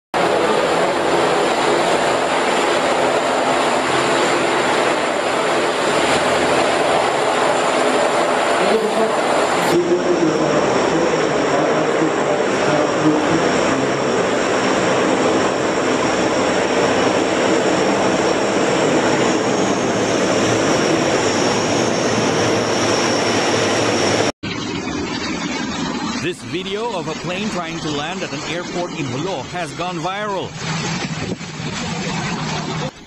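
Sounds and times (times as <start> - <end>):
high engine whine: 0.2 - 33.0
turboprop engines droning: 0.2 - 33.0.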